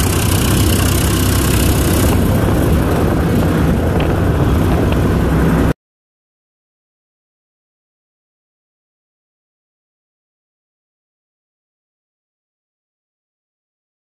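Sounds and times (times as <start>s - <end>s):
tractor diesel engine running: 0.0s - 5.7s.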